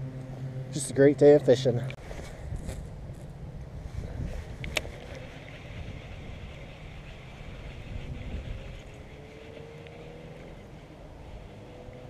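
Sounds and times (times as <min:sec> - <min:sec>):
wind buffeting microphone: 0:02.0 - 0:12.0.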